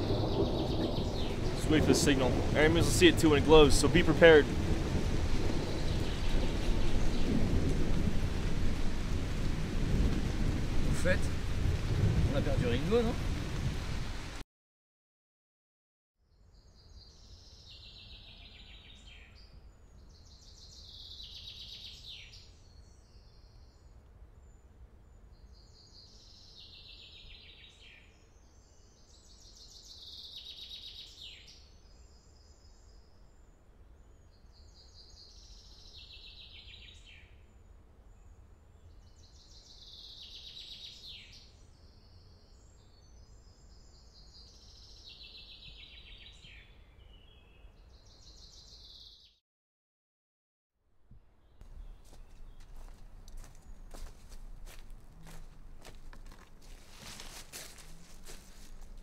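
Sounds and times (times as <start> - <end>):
bird singing fluttering phrases: 0.0 - 4.4, 5.5 - 7.7, 51.7 - 59.0
steady low rumble: 0.0 - 12.6.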